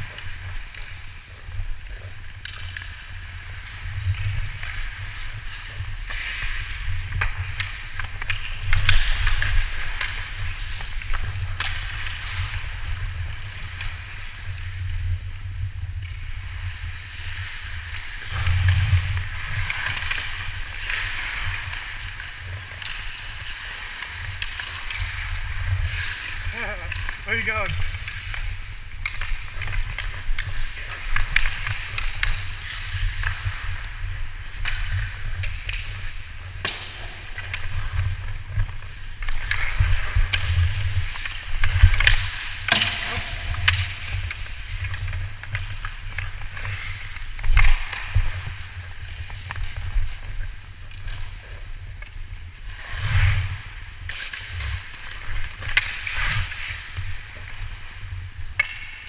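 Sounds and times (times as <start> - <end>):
skates scraping on ice: 0.0 - 59.0
sticks and puck clacking: 0.0 - 59.0.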